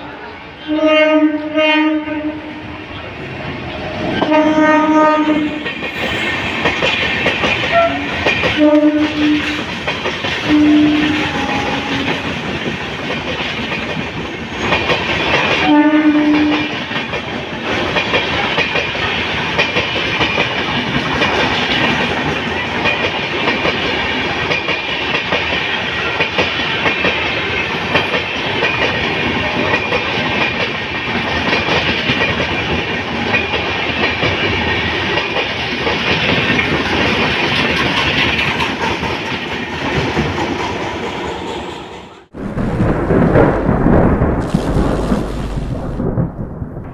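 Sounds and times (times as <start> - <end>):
train wheels rushing on rail: 0.0 - 42.4
train horn note: 0.6 - 2.7, 4.0 - 5.7, 7.7 - 9.6, 10.4 - 12.2, 15.6 - 16.8
clickety-clack over rail joints: 4.0 - 42.3.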